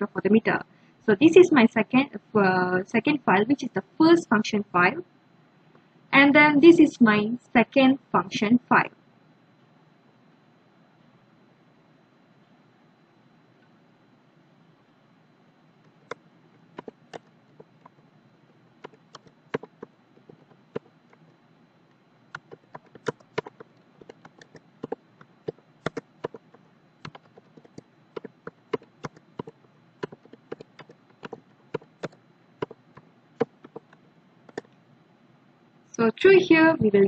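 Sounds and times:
computer keyboard keystrokes: 0:15.8 - 0:18.0, 0:18.8 - 0:21.4, 0:22.3 - 0:34.8.

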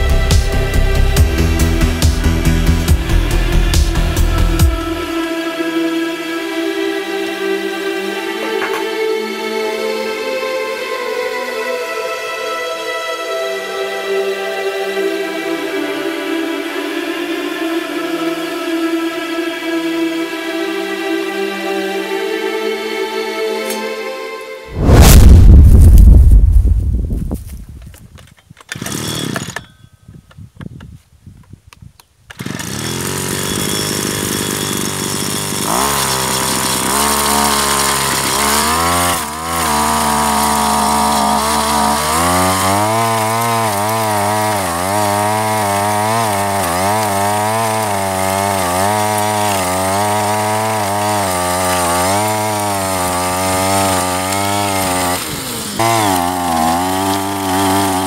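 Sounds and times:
pull starter cord: 0:28.4 - 0:29.8
small two-stroke engine running: 0:28.7 - 0:29.7, 0:32.3 - 0:58.0
spiked disc digging soil: 0:32.3 - 0:58.0.

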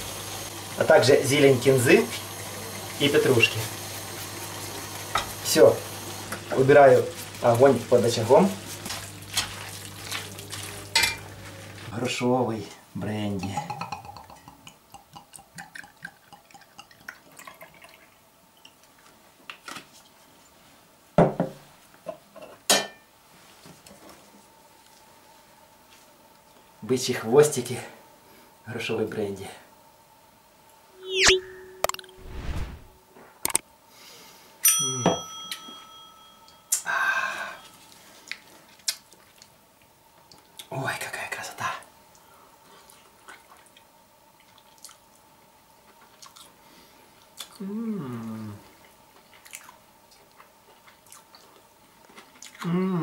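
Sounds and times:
liquid pouring into glass: 0:15.2 - 0:18.1
glass knocking on counter: 0:21.2 - 0:21.6
bright bell-like chime: 0:34.6 - 0:36.8.

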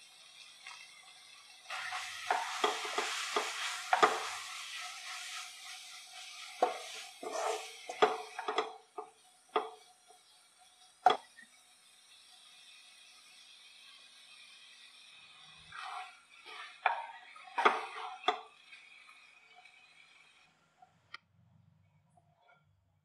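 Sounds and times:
vegetables sizzling: 0:00.0 - 0:20.5
spatula scraping frying pan: 0:01.7 - 0:09.9, 0:15.7 - 0:18.6.

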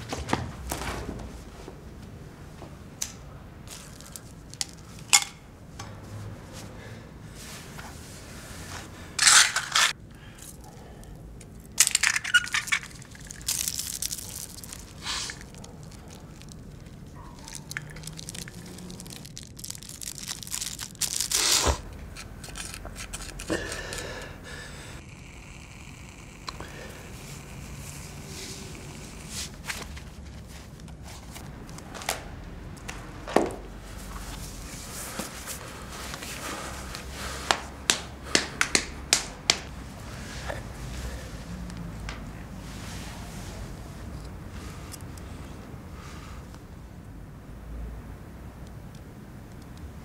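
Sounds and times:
packaging crinkling and rustling: 0:03.7 - 0:05.3, 0:11.6 - 0:24.0.

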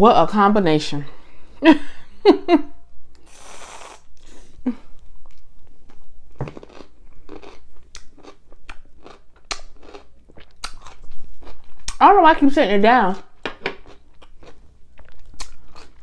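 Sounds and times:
pickle crunching: 0:04.9 - 0:12.0, 0:13.1 - 0:16.0.

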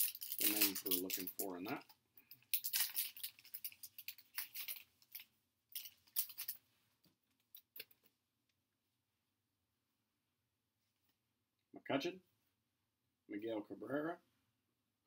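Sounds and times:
plastic wrapper tearing and crinkling: 0:00.0 - 0:05.2, 0:05.8 - 0:06.6.

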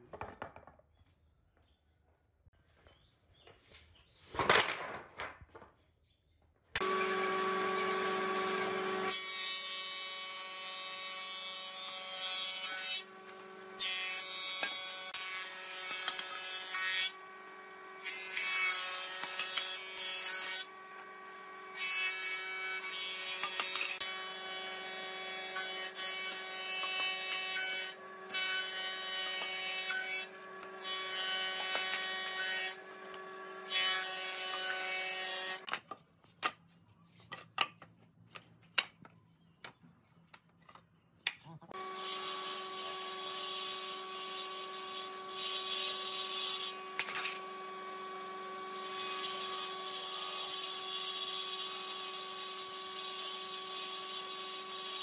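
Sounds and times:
wooden boards knocking together: 0:00.0 - 0:00.8, 0:04.3 - 0:05.7
planer shaving wood: 0:06.8 - 0:35.7, 0:41.8 - 0:55.0.

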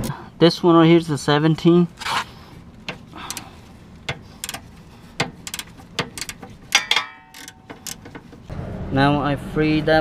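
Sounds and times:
socket ratchet clicking: 0:04.1 - 0:08.4
short metallic ring: 0:06.7 - 0:08.0.

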